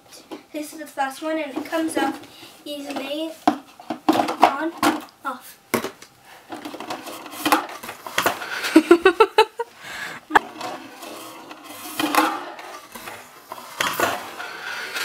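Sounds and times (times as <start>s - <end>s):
plastic containers clattering: 2.9s - 5.1s, 5.8s - 8.8s.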